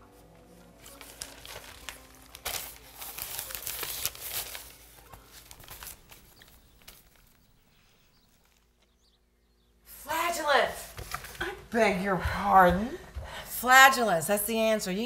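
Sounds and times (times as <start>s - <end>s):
newspaper pages rustling: 0.4s - 9.0s, 10.9s - 11.5s.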